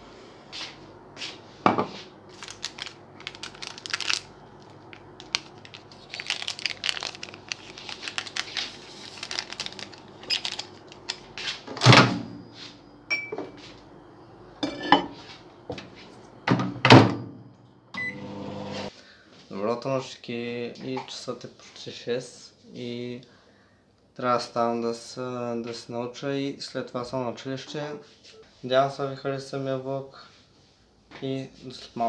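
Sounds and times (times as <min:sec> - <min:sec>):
microwave keypad beep: 0:13.1 - 0:13.5, 0:18.0 - 0:18.3
mug and dishes clinking: 0:13.1 - 0:13.5, 0:14.6 - 0:15.2.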